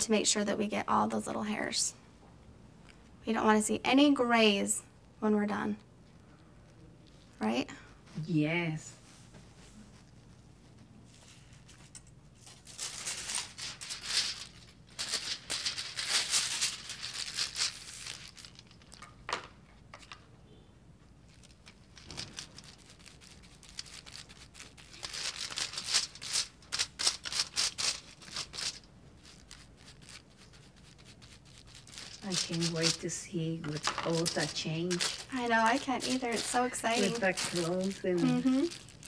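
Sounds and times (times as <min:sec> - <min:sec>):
aluminium foil crinkling: 0:11.1 - 0:19.3, 0:21.2 - 0:39.0.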